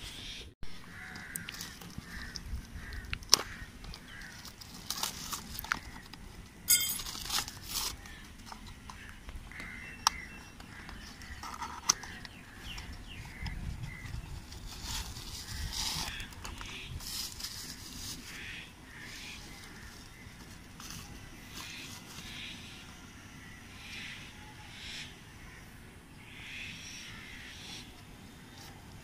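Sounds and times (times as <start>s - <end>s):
plastic crinkling: 1.3s - 9.1s
cardboard clicks and scrapes: 7.0s - 22.6s.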